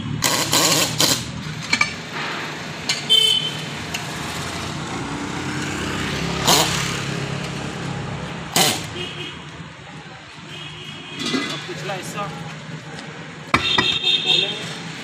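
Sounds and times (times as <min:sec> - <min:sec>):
pneumatic air hammer blows: 0:00.0 - 0:03.1, 0:06.4 - 0:07.0, 0:08.5 - 0:09.0
street traffic: 0:00.0 - 0:15.0
car horn toot: 0:03.1 - 0:03.7, 0:13.6 - 0:14.6.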